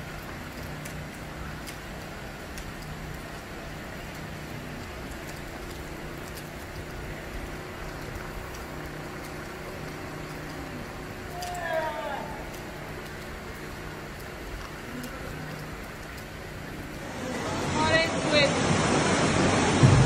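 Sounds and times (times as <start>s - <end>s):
faint ticks: 0.0s - 17.0s
low steady hum: 0.0s - 20.0s.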